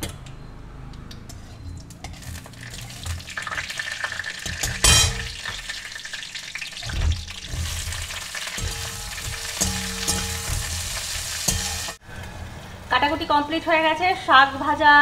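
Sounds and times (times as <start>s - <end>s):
vegetables sizzling in oil: 2.2s - 12.0s.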